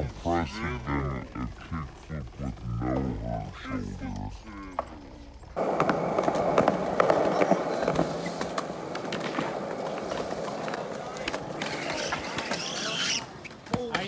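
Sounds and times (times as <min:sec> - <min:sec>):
skateboard wheels rolling on concrete: 0:04.1 - 0:14.0
wheels clicking over pavement cracks: 0:05.6 - 0:14.0.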